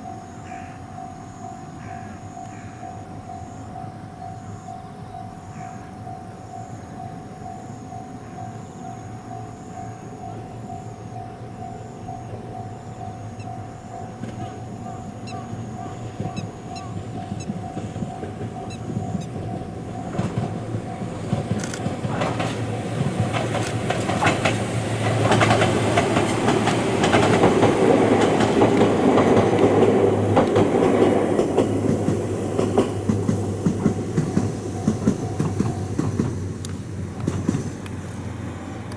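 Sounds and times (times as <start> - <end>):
electric train passing: 0.0 - 38.9
wheels clicking over rail joints: 10.1 - 38.0.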